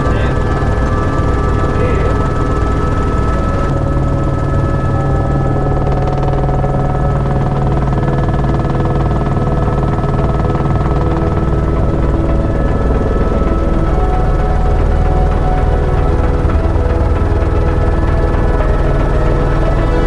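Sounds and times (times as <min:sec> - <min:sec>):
helicopter engine and rotor drone: 0:00.0 - 0:20.0.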